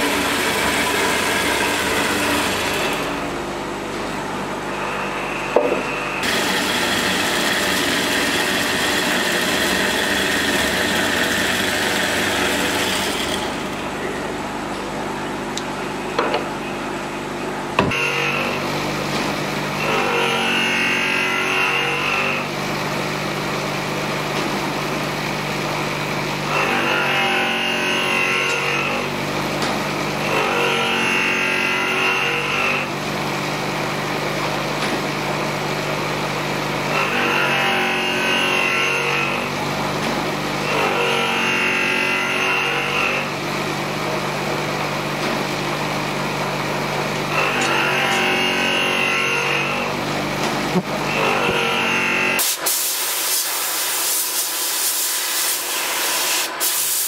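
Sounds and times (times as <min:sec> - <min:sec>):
bandsaw cutting wood: 0:00.0 - 0:03.4, 0:06.2 - 0:13.9, 0:19.7 - 0:22.5, 0:26.4 - 0:29.3, 0:30.1 - 0:33.0, 0:36.0 - 0:43.6, 0:45.4 - 0:57.0.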